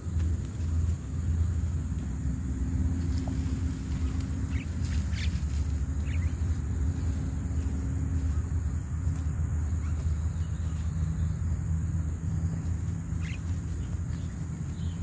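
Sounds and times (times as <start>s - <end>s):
low outdoor rumble: 0.0s - 15.0s
bird chirps: 4.1s - 6.6s, 9.7s - 11.5s, 12.5s - 15.0s.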